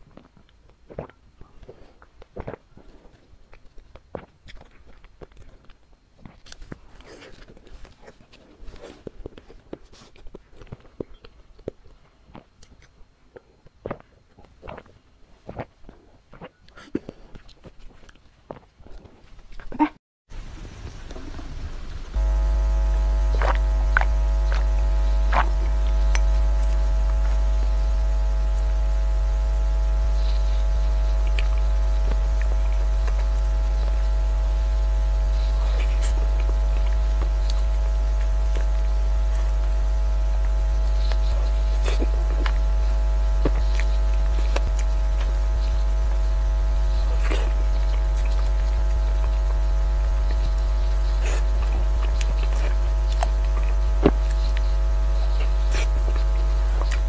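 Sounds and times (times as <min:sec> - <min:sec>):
electrical mains hum: 0:20.3 - 0:57.0.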